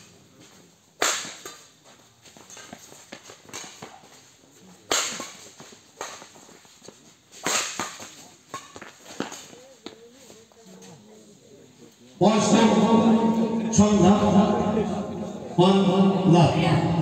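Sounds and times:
badminton rackets hitting shuttlecock: 0:04.9 - 0:06.2, 0:07.4 - 0:09.6.

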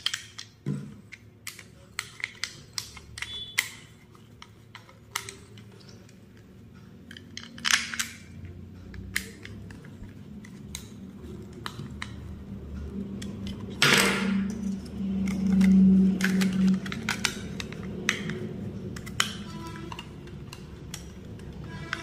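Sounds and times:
low hum: 0:10.1 - 0:22.0.

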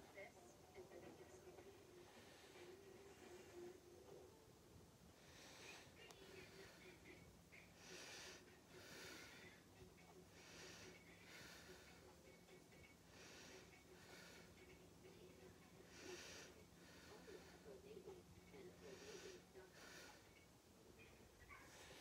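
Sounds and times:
faint steady hum: 0:00.0 - 0:22.0
soft breathing: 0:00.8 - 0:04.4, 0:05.0 - 0:22.0.

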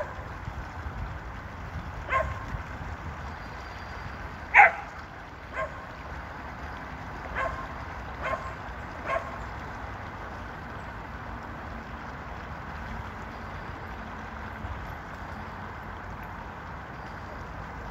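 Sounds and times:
dog barking: 0:02.1 - 0:02.4, 0:04.5 - 0:04.9, 0:05.6 - 0:05.8, 0:07.4 - 0:07.6, 0:08.2 - 0:09.3.

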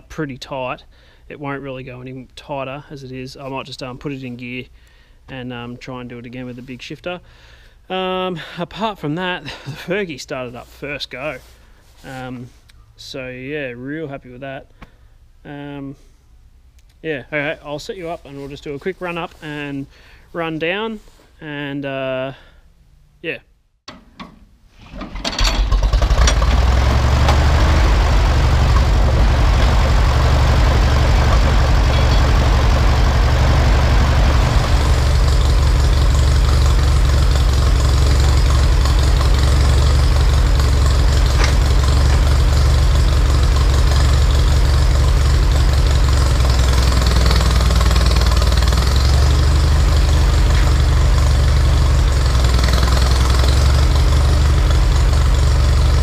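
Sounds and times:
tractor engine running: 0:24.9 - 0:56.0.

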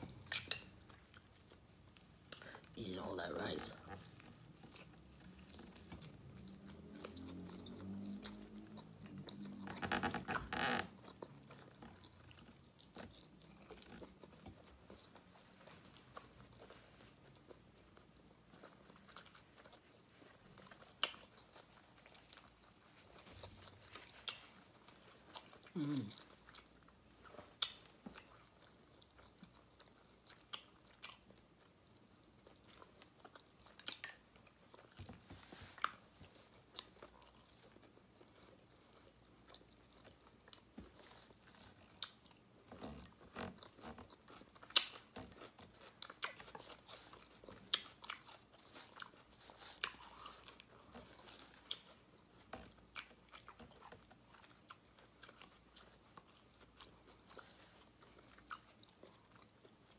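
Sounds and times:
person chewing: 0:00.0 - 0:59.9.

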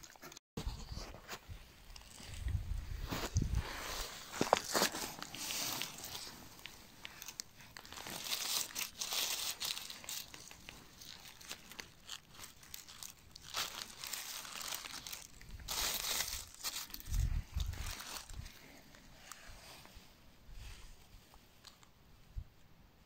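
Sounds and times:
dry leaves rustling and crackling: 0:03.2 - 0:18.8.

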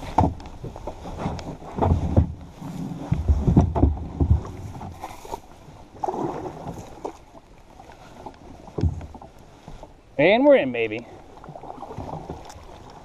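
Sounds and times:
kayak hull scraping through grass: 0:00.0 - 0:10.0, 0:11.2 - 0:13.0
low thumps and rustling: 0:00.0 - 0:10.0.

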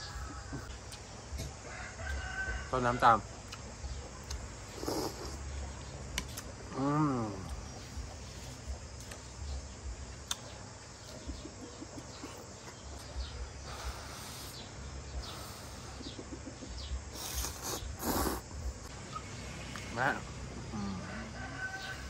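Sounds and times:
birds chirping: 0:00.0 - 0:22.0
person slurping noodles: 0:04.8 - 0:05.4, 0:17.2 - 0:18.5.

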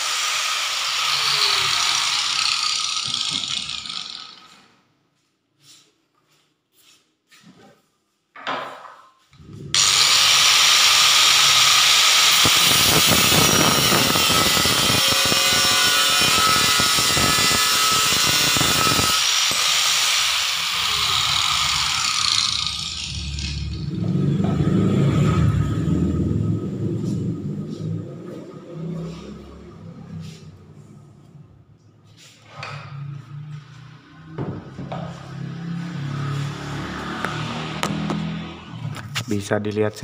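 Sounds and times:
angle grinder cutting steel: 0:00.0 - 0:04.6, 0:09.7 - 0:26.2
low rumble: 0:23.7 - 0:31.7.

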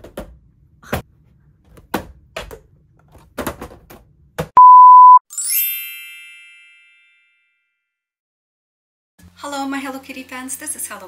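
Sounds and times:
steady beep tone: 0:04.6 - 0:05.2
bright sparkling chime: 0:05.3 - 0:07.3.

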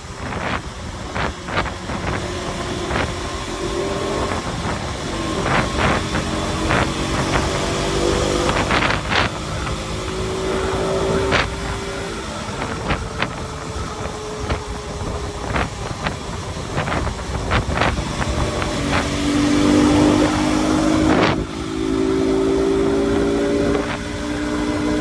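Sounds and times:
motorcycle engine running: 0:00.0 - 0:25.0
wind rushing: 0:00.0 - 0:25.0.

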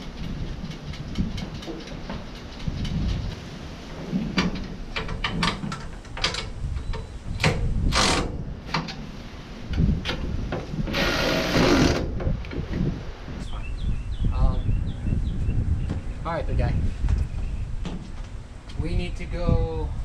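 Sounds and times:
metal clicks and knocks: 0:04.3 - 0:09.0
cordless electric ratchet running: 0:10.9 - 0:12.0.

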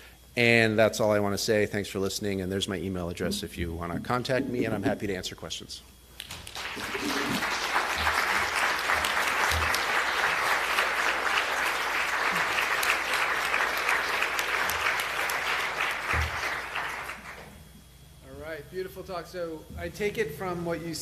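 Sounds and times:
audience applauding: 0:06.2 - 0:17.5.

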